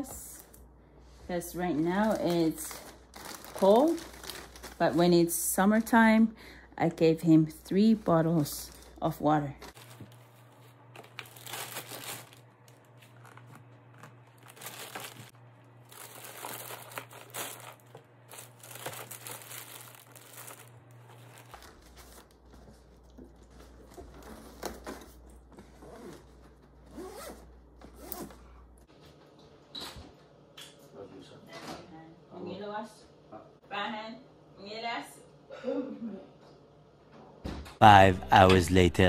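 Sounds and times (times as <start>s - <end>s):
plastic bag rustling: 1.7s - 6.2s, 7.9s - 26.9s
backpack zippers: 26.9s - 27.4s.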